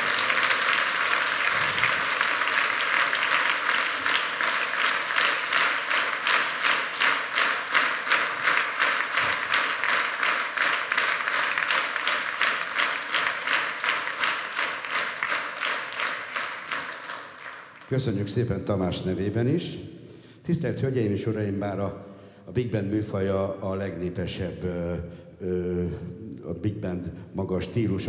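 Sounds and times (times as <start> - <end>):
audience applauding: 0.0 - 18.1
rhythmic clapping in unison: 0.0 - 18.2.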